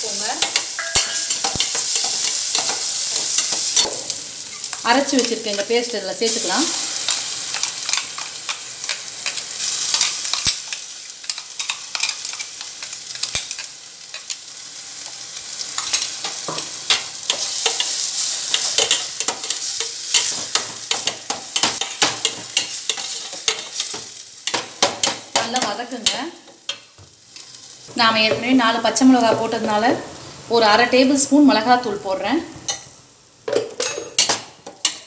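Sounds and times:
onion and tomato sizzling in oil: 0.0s - 35.0s
spoon scraping and clicking on pan: 33.5s - 35.0s.

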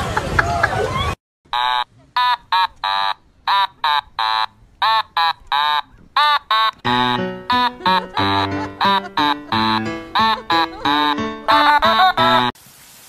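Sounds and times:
buzzy staccato tune: 3.5s - 12.5s
low musical accompaniment: 6.9s - 12.5s.

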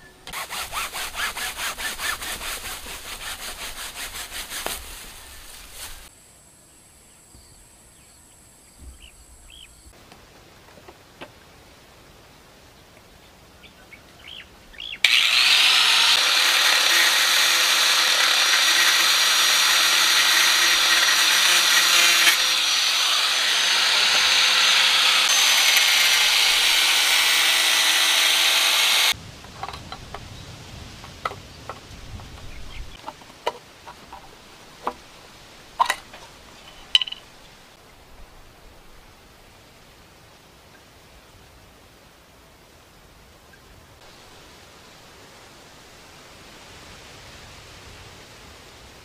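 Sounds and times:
electric drill whining: 15.0s - 29.2s.

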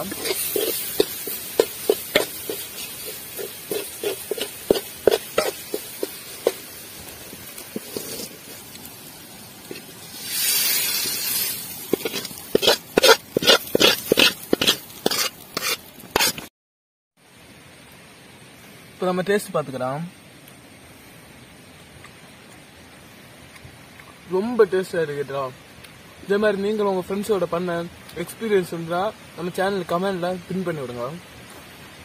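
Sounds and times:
metal spoon scraping a pot: 0.0s - 6.6s, 9.7s - 16.5s
short hiss: 0.0s - 16.5s.

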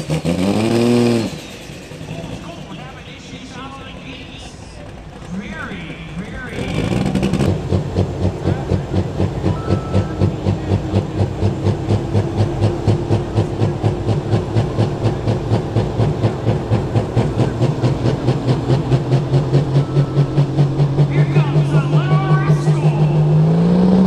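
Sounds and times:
diesel engine idling with lope: 0.0s - 24.0s.

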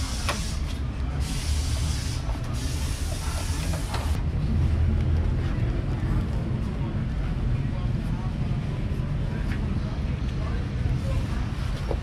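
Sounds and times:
hiss: 0.0s - 4.2s
traffic rumble: 0.0s - 12.0s.

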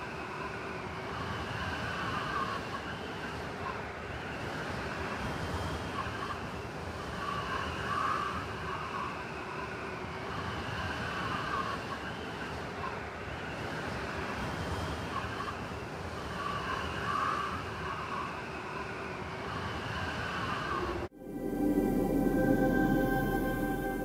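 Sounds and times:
steady rushing noise: 17.8s - 24.0s
faint wavering tones: 20.8s - 24.0s.

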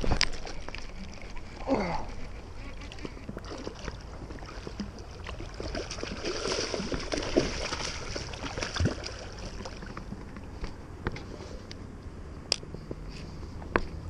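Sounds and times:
fish splashing in water: 0.0s - 10.1s.

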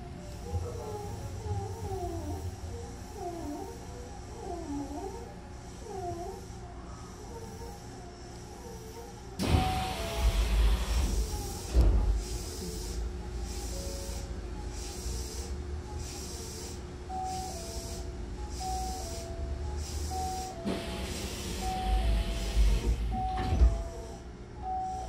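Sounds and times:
steady hum: 0.0s - 25.0s
sliding doors shutting thump: 9.4s - 12.2s, 22.7s - 23.9s.

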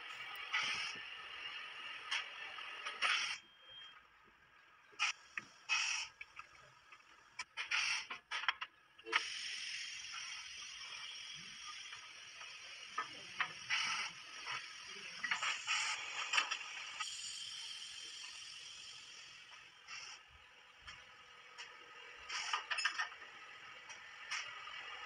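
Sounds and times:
steady hiss: 9.1s - 20.2s.

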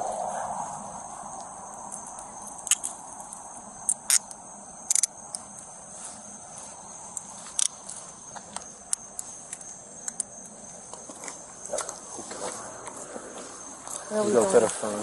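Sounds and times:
night insects chirping: 0.0s - 15.0s
sharp clicks: 1.9s - 5.4s, 7.1s - 11.0s.

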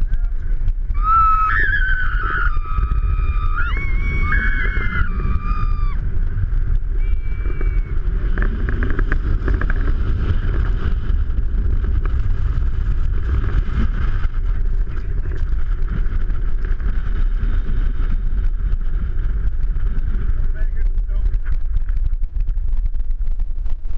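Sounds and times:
snow tubes sliding over snow: 0.0s - 23.9s
wind buffeting microphone: 0.0s - 23.9s
high-pitched squeal: 1.0s - 6.0s, 6.9s - 8.2s.

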